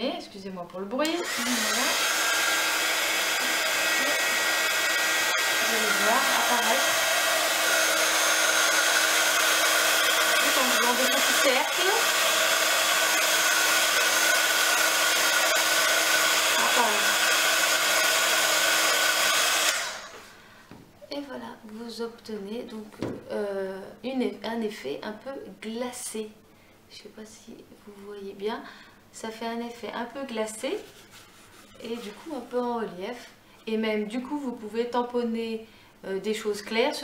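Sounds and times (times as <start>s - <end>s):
heat gun motor whine: 1.0s - 20.3s.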